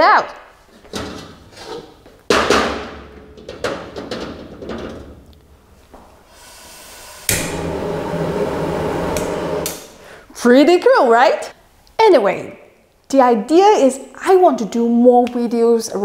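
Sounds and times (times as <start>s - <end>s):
gas burner hissing: 6.2s - 10.3s
gas flame rushing: 6.3s - 10.3s.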